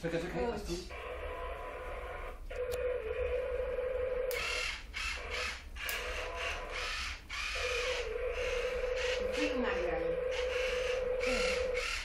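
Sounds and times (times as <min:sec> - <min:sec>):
toy excavator buzzing hum: 0:00.9 - 0:12.0
ratchety grinding noise: 0:04.3 - 0:12.0.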